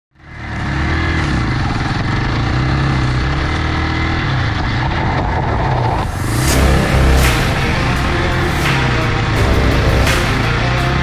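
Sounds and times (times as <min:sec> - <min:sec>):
motorcycle engine running: 0:00.1 - 0:11.0.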